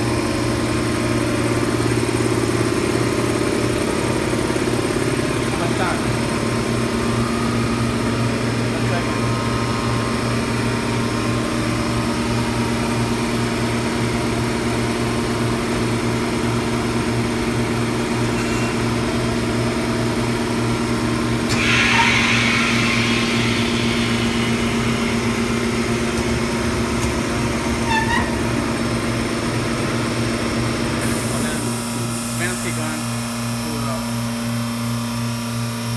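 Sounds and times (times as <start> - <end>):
industrial machine humming: 0.0 - 35.9
hissing air burst: 21.5 - 26.1.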